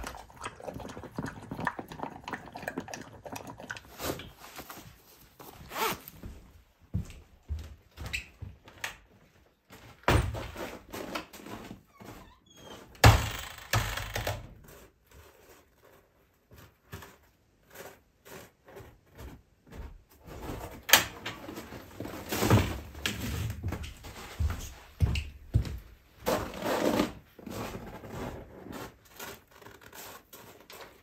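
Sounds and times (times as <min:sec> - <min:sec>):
wooden door knocks and thumps: 0:12.9 - 0:14.5.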